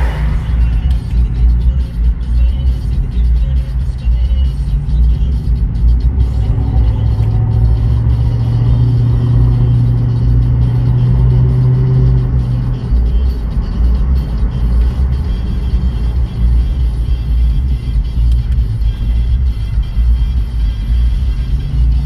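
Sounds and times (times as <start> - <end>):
truck engine drone from cab: 0.0 - 22.0.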